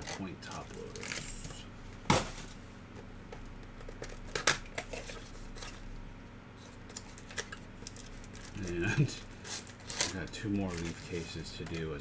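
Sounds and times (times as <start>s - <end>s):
cardboard and foil rustling: 6.6s - 12.0s.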